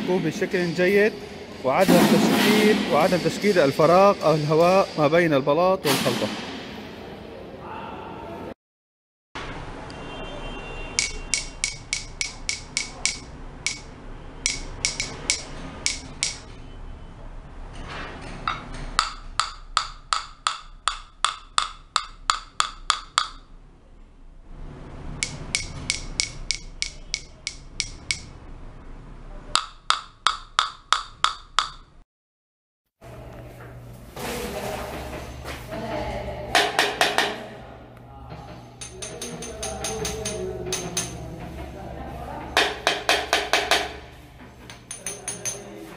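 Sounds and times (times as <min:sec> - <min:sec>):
pen tapping on ceramic tiles: 0:11.0 - 0:16.4, 0:19.0 - 0:23.4, 0:25.2 - 0:28.3, 0:29.6 - 0:31.8, 0:38.8 - 0:41.2, 0:42.6 - 0:44.0, 0:44.6 - 0:45.7.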